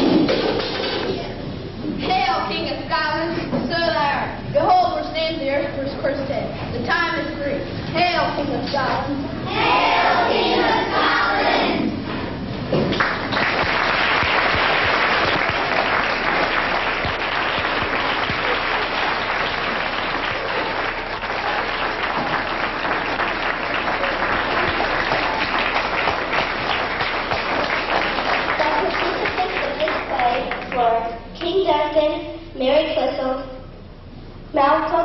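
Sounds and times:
audience applauding: 12.9s - 30.8s.

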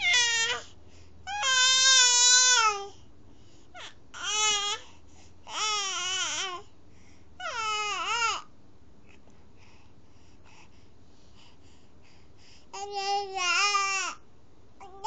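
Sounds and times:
infant wailing: 0.0s - 0.6s, 1.3s - 2.9s, 3.8s - 4.8s, 7.4s - 8.4s
infant crying: 0.0s - 0.7s, 1.3s - 2.9s, 3.8s - 4.8s, 5.5s - 6.6s, 7.4s - 8.5s.

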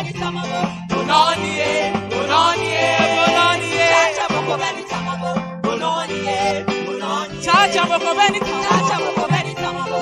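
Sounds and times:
live band playing: 0.0s - 10.0s
woman singing into a microphone: 6.0s - 10.0s.

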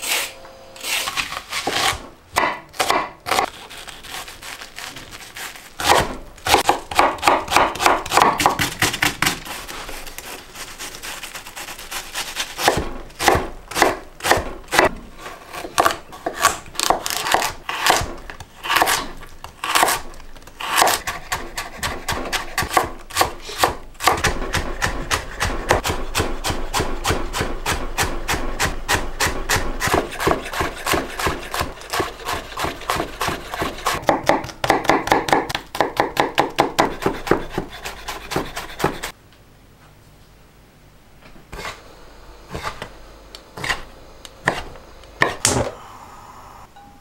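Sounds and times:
knife chopping on wooden board: 1.6s - 3.5s, 5.8s - 9.5s, 12.6s - 15.0s, 20.7s - 39.1s, 44.4s - 45.7s.

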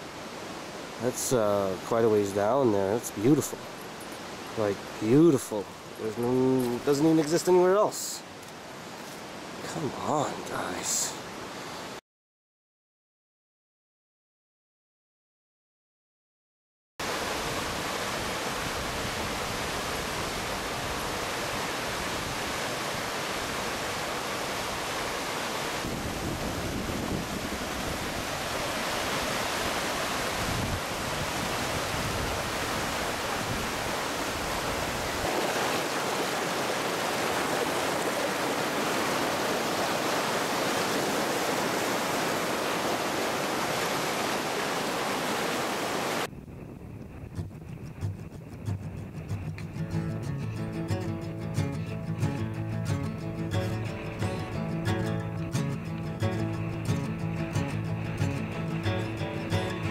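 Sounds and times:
water rushing over rocks: 0.0s - 11.6s, 17.0s - 46.3s.

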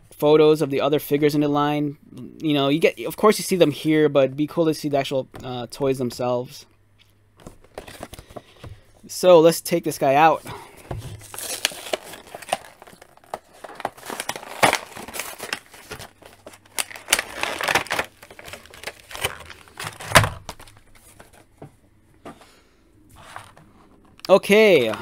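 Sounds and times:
plastic packaging crinkling and tearing: 11.0s - 21.4s.

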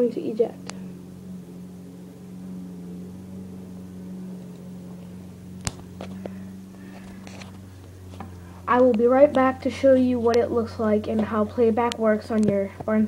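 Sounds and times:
level tones: 0.0s - 8.7s
steady low hum: 0.0s - 13.0s.

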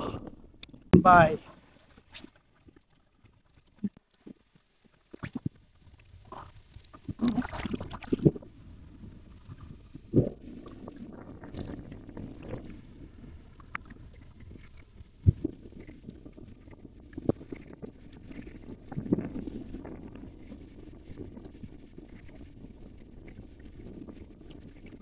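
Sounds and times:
sea water sloshing: 6.3s - 21.2s.

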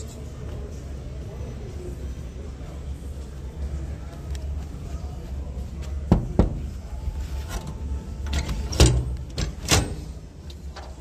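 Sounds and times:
low background hum: 0.0s - 11.0s.

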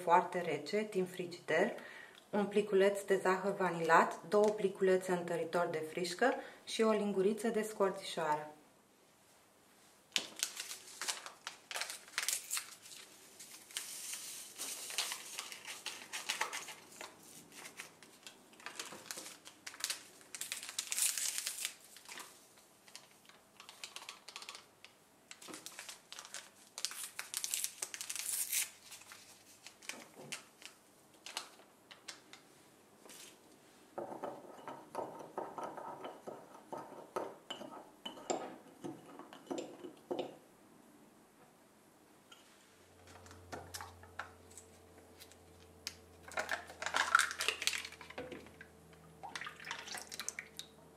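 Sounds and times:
paper sachets crinkling: 10.2s - 32.4s, 46.2s - 48.2s
teaspoon stirring in a mug: 34.2s - 40.3s.

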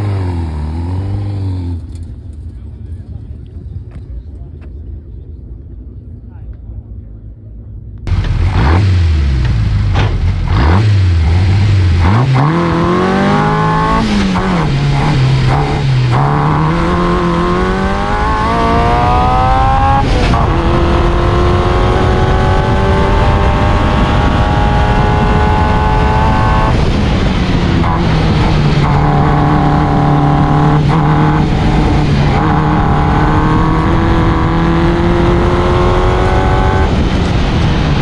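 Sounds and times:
race car engine accelerating: 8.1s - 38.0s.

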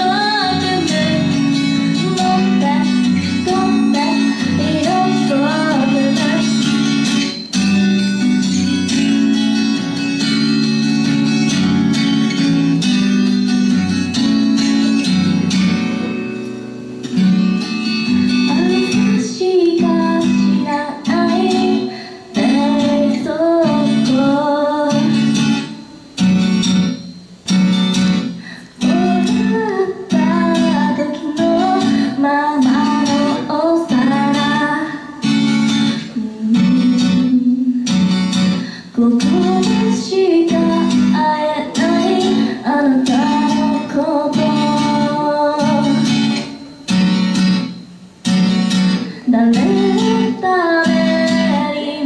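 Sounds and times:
woman singing: 0.0s - 7.4s, 18.1s - 26.0s, 28.7s - 46.7s, 49.1s - 52.0s
acoustic guitar strumming: 0.0s - 52.0s.

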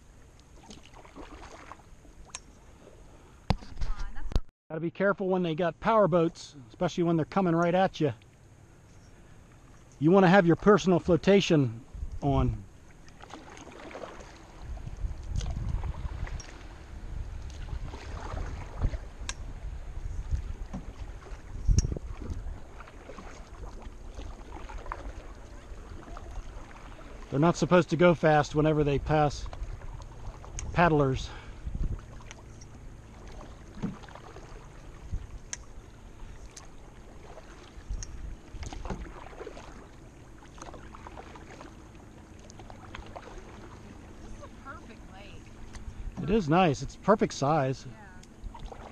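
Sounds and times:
paddle swishing through water: 0.0s - 4.4s, 11.8s - 48.9s
wind on microphone: 11.8s - 12.7s, 14.5s - 22.8s, 28.6s - 32.2s, 35.0s - 35.8s.

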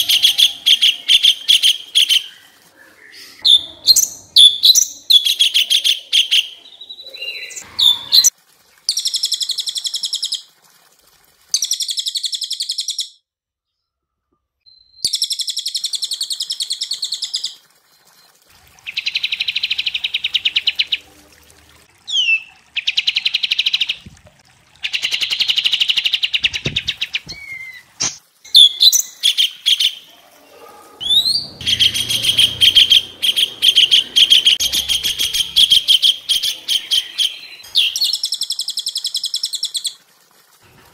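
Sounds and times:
songbirds trilling: 30.8s - 38.2s.

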